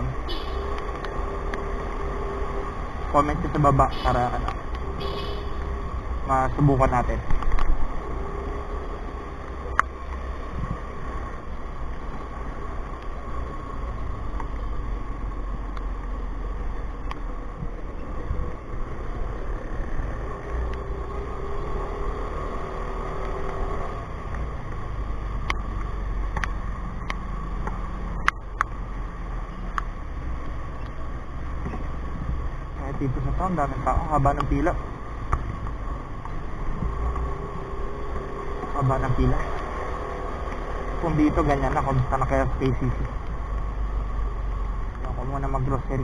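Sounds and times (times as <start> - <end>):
motorcycle engine running: 0.0 - 12.3
road and wind noise: 0.0 - 46.0.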